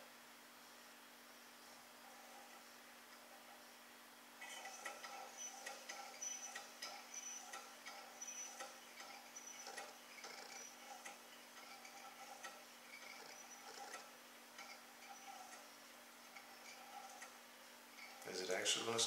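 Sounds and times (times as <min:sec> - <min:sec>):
stirling engine squeak and tick: 0:04.4 - 0:15.7, 0:16.3 - 0:17.4, 0:18.0 - 0:18.3.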